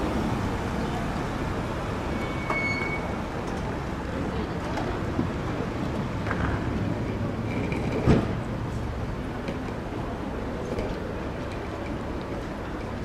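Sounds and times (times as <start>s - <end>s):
road traffic rumble: 0.0s - 13.0s
brief high squeak: 2.2s - 3.2s.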